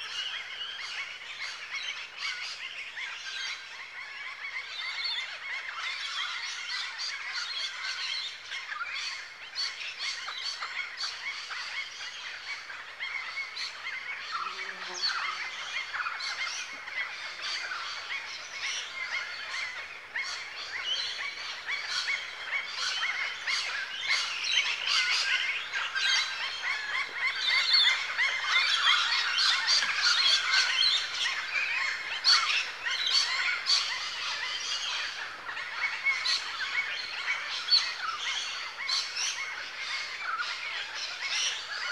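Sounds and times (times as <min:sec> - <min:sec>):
birds chirping and twittering: 0:00.0 - 0:41.9.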